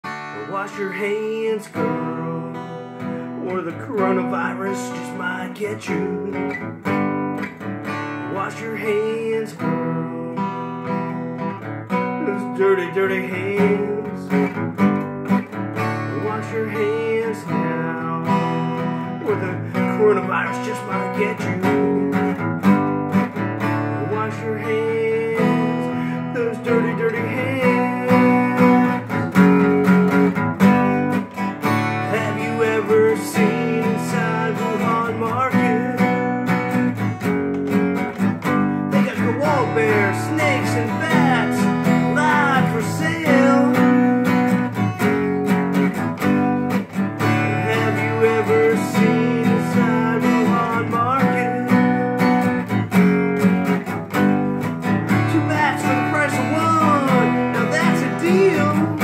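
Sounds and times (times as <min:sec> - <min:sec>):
acoustic guitar strumming: 0:00.0 - 0:59.0.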